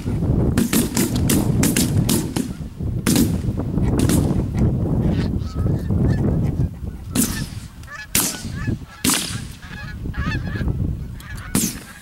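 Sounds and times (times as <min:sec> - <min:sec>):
shotgun blasts: 0:00.5 - 0:04.4, 0:07.2 - 0:09.6, 0:11.5 - 0:12.0
geese honking: 0:03.8 - 0:12.0.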